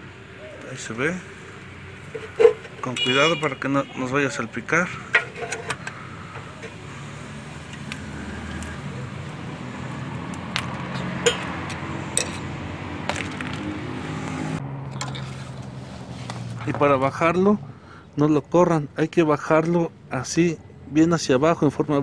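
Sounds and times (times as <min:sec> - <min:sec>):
screwdriver scraping against steel: 0:05.1 - 0:06.8.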